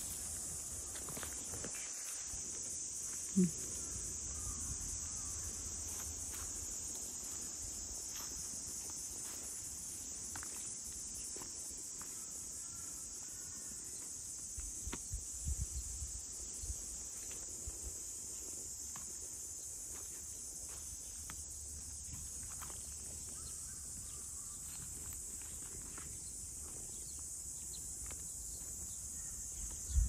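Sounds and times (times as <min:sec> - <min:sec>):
insects buzzing: 0:00.0 - 0:30.0.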